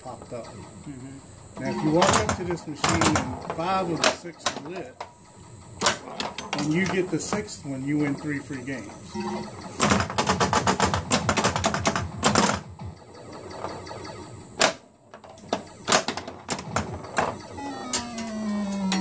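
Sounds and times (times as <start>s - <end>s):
falling electronic tones: 0.0s - 9.8s, 16.9s - 19.0s
pinball machine clicks: 1.4s - 19.0s.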